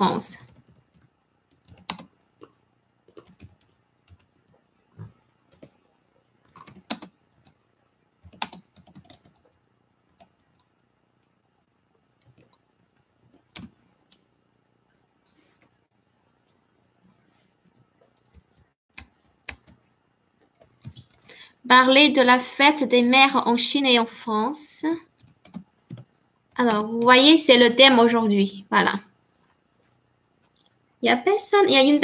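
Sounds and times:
typing on computer keyboard: 0.4s - 4.6s, 6.5s - 7.6s, 8.2s - 9.5s, 12.2s - 13.8s, 17.6s - 19.8s, 20.5s - 21.4s, 25.1s - 27.2s.

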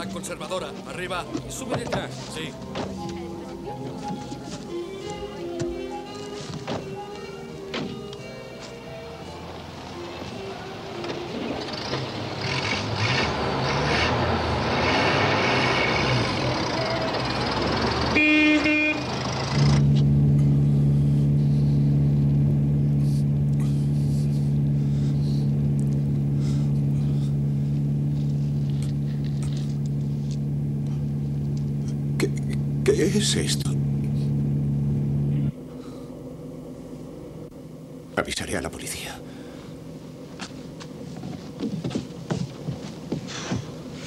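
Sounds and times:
car engine: 0.0s - 44.0s
road noise: 0.0s - 44.0s
car horn toot: 18.0s - 19.6s.

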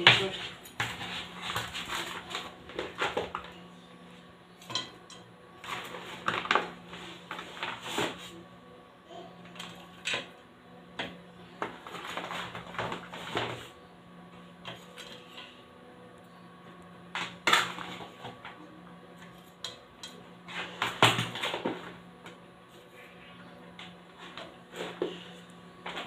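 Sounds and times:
plates and cutlery clinking: 4.6s - 6.6s.

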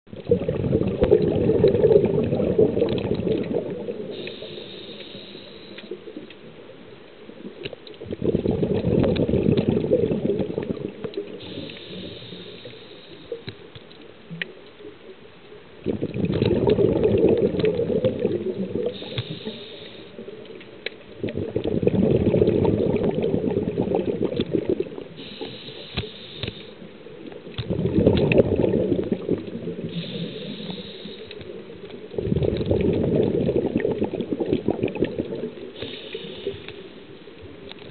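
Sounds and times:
bubbly rush of exhaled air: 0.1s - 5.7s, 8.0s - 12.7s, 15.8s - 20.0s, 21.2s - 25.9s, 27.6s - 31.2s, 32.1s - 36.7s
faint clicks: 2.8s - 8.0s, 9.0s - 15.6s, 19.0s - 21.7s, 24.2s - 28.4s, 29.4s - 37.9s
high hiss of inhalation: 4.2s - 6.0s, 11.4s - 13.4s, 19.0s - 20.2s, 25.2s - 26.8s, 29.9s - 31.4s, 35.8s - 36.9s.

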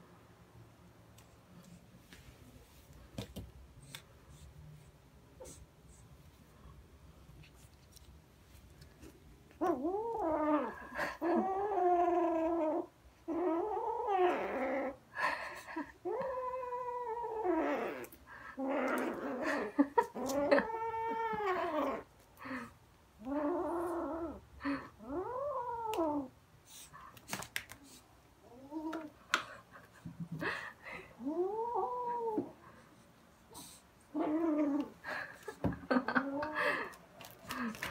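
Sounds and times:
kitten growling: 9.5s - 15.0s, 16.0s - 26.3s, 31.0s - 32.6s, 33.5s - 37.9s.

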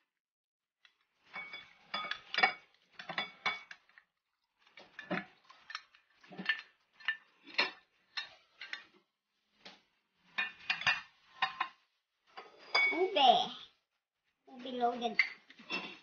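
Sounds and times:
glass dish clinking on bowl: 12.7s - 13.0s.

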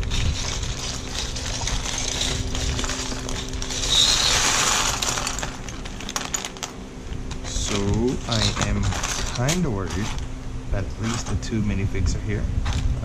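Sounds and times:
plastic bricks clattering onto a mat: 0.0s - 9.6s
plastic bag crinkling: 0.0s - 10.2s.

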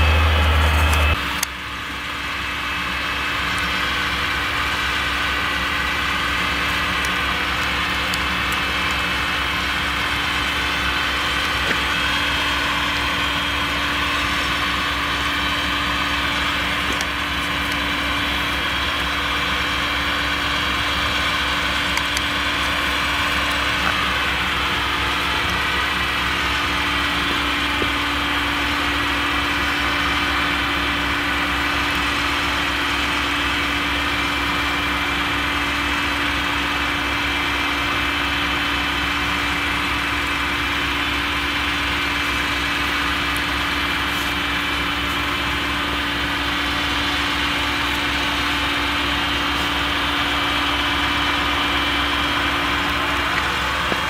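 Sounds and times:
harvester engine droning: 0.0s - 54.0s
high machine whine: 0.0s - 54.0s.

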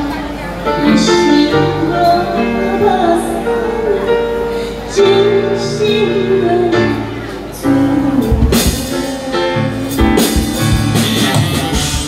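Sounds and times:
amplified instrumental accompaniment: 0.0s - 12.0s
woman singing into microphone: 0.0s - 12.0s
drum hits: 10.0s - 12.0s.

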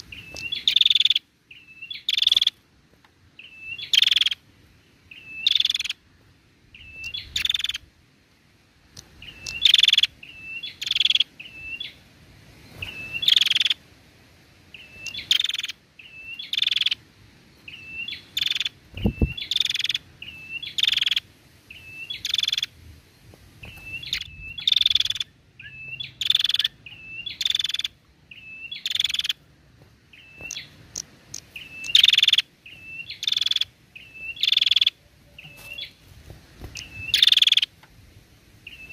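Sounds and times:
bird chirping and rattling: 9.2s - 10.1s, 14.8s - 15.7s, 23.6s - 29.4s, 30.1s - 36.0s, 36.6s - 37.7s.

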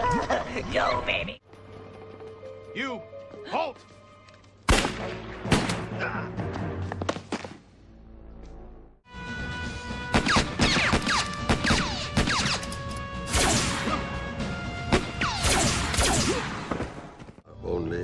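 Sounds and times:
music with sustained notes: 1.4s - 5.5s, 7.9s - 10.6s
gunshots: 4.7s - 6.0s, 10.1s - 12.7s, 13.3s - 14.1s, 14.9s - 17.1s.

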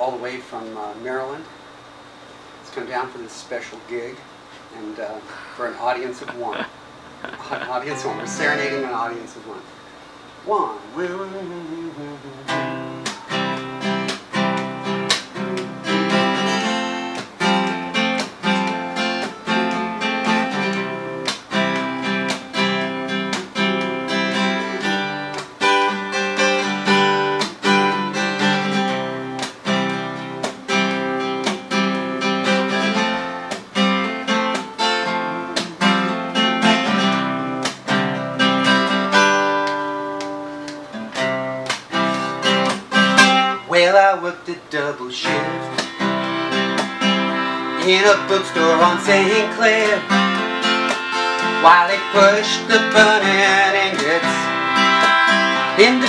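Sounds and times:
acoustic guitar strumming: 5.4s - 9.4s, 10.5s - 56.0s
melodica held notes: 54.0s - 56.0s.

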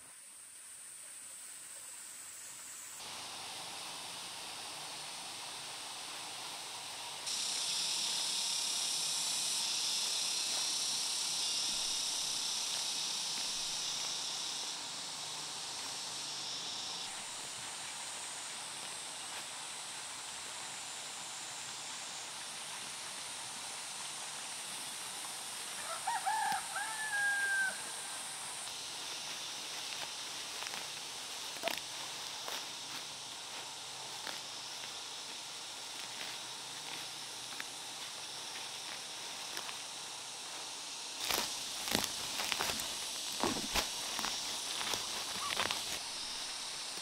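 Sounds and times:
high-pitched hiss: 0.0s - 47.0s
rooster crowing: 25.8s - 28.1s.

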